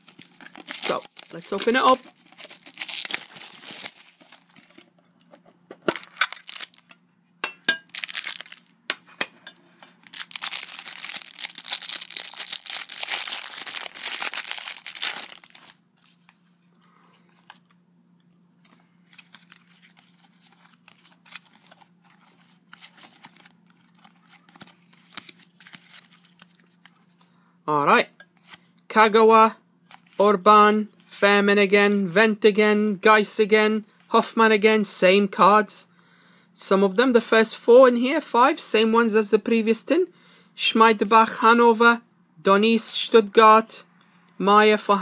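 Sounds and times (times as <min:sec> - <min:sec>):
cellophane wrapping tearing and crumpling: 0:00.0 - 0:04.6, 0:05.9 - 0:06.9, 0:07.9 - 0:08.7, 0:10.0 - 0:15.8, 0:19.1 - 0:21.8, 0:22.7 - 0:26.6.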